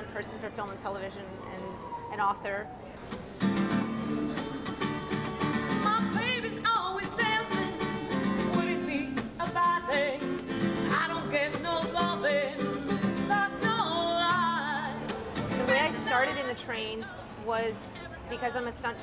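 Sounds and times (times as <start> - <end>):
acoustic guitar strumming: 3.0 - 17.0
woman singing with vibrato: 4.8 - 17.2.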